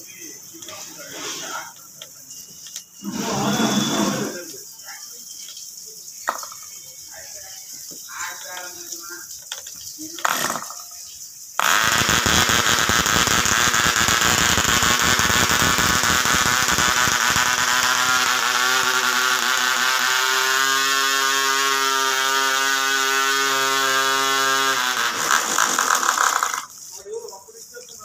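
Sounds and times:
model aircraft engine running: 0:12.6 - 0:26.7.

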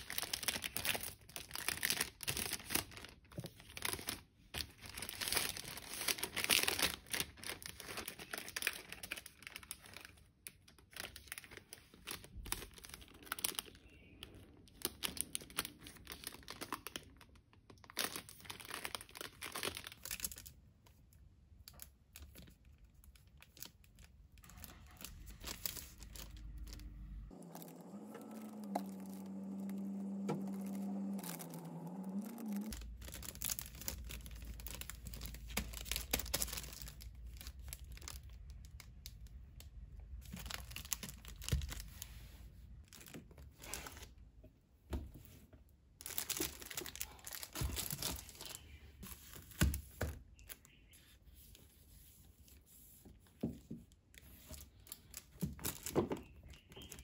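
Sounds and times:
plastic shrink-wrap crinkling: 0:00.0 - 0:44.2, 0:45.9 - 0:51.7, 0:53.9 - 0:57.0
low hum: 0:24.6 - 0:33.4.

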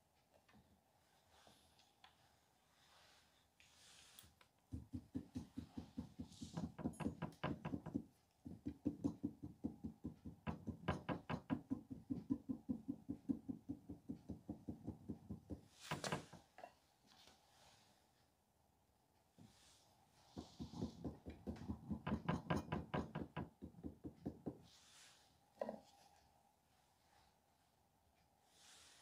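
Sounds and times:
dull knocks tapping clay: 0:04.7 - 0:16.4.

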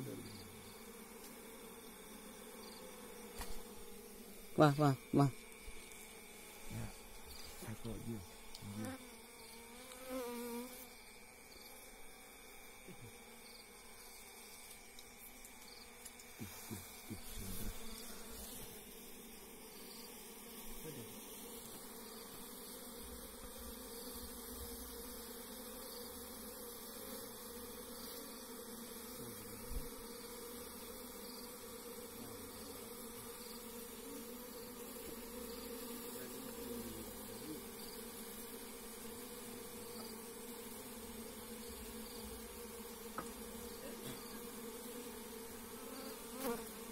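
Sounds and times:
honeybees buzzing: 0:00.0 - 0:46.9
tap on hive: 0:01.2 - 0:02.0, 0:03.3 - 0:03.7, 0:29.6 - 0:30.0, 0:39.9 - 0:40.2, 0:43.0 - 0:44.4.

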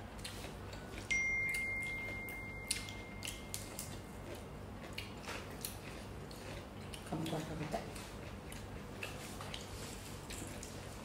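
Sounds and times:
clear ringing tone: 0:00.8 - 0:04.3.

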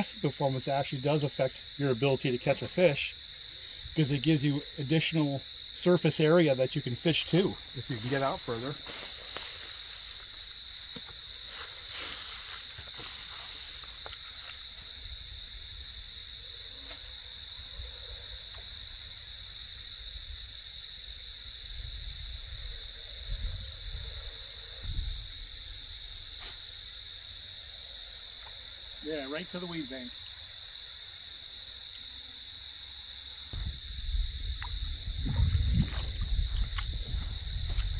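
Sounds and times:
high-pitched insect chorus: 0:00.0 - 0:37.9
low rumbles: 0:33.5 - 0:37.9.

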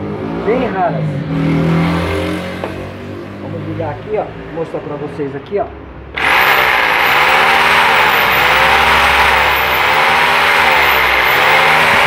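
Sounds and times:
power tool motor whining: 0:06.2 - 0:12.0.

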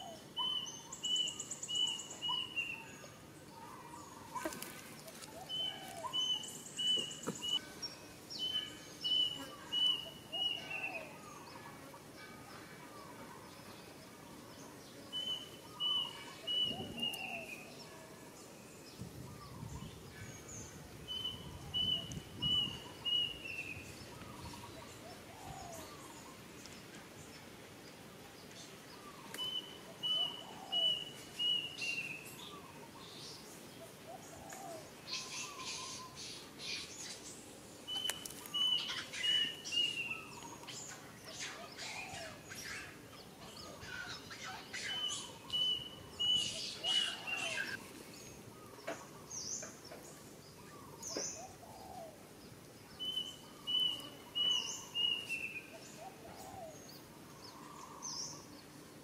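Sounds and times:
bird chirps: 0:00.0 - 0:11.6, 0:14.6 - 0:18.0, 0:28.4 - 0:33.4, 0:37.9 - 0:52.2, 0:52.8 - 0:58.6.

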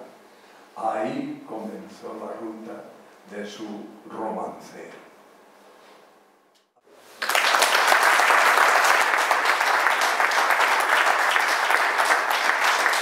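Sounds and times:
audience applauding: 0:07.2 - 0:13.0.

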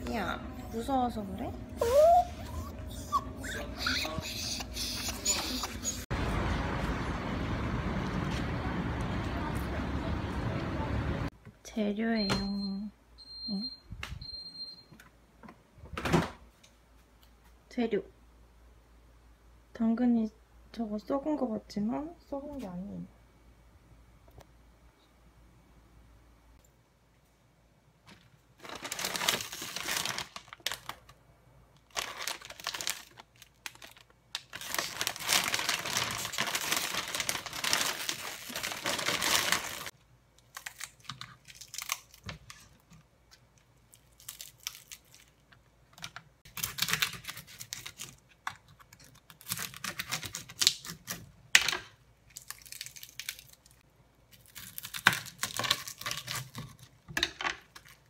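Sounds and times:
dried fish crackling and tearing: 0:31.8 - 0:42.7, 0:43.9 - 0:45.5, 0:46.5 - 0:48.3, 0:48.9 - 0:51.2, 0:52.3 - 0:57.0.

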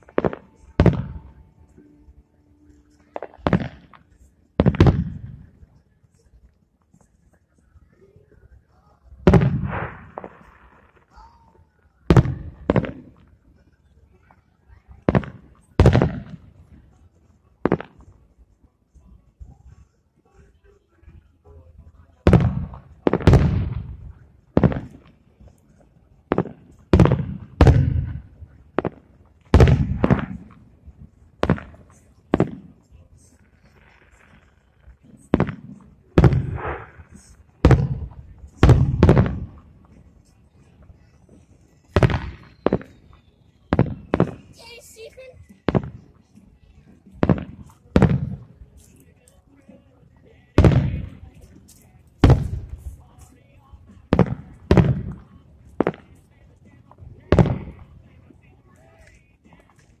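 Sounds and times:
firework shells booming: 0:00.0 - 0:01.4, 0:03.0 - 0:05.6, 0:09.2 - 0:11.2, 0:12.0 - 0:13.3, 0:15.0 - 0:16.8, 0:22.2 - 0:25.2, 0:26.3 - 0:30.8, 0:31.4 - 0:32.8, 0:33.6 - 0:40.1, 0:41.9 - 0:44.6, 0:47.1 - 0:48.5, 0:50.6 - 0:51.4, 0:52.2 - 0:52.9, 0:54.0 - 0:56.2, 0:57.3 - 0:57.9
firework shells bursting: 0:00.0 - 0:02.0, 0:26.3 - 0:30.8, 0:31.4 - 0:40.1, 0:41.8 - 0:45.0.

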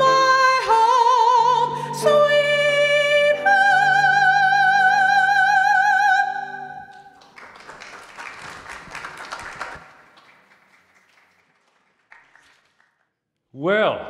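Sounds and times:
congregation clapping: 0:06.8 - 0:13.2.

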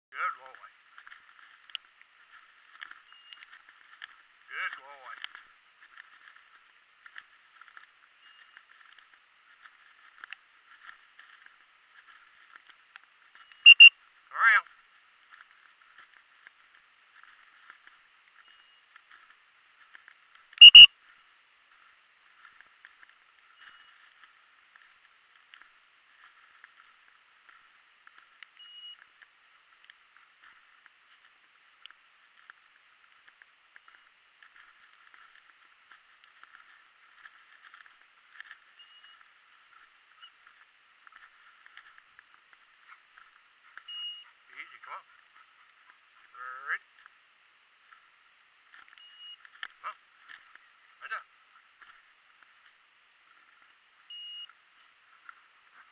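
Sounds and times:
dry grass crackling: 0:00.1 - 0:55.9
short electronic beeps: 0:03.0 - 0:03.6, 0:08.2 - 0:08.7, 0:13.4 - 0:14.0, 0:18.4 - 0:18.9, 0:20.6 - 0:20.9, 0:23.5 - 0:24.0, 0:28.6 - 0:29.0, 0:38.8 - 0:39.2, 0:40.2 - 0:40.4, 0:43.8 - 0:44.4, 0:49.0 - 0:49.4, 0:54.1 - 0:54.6.

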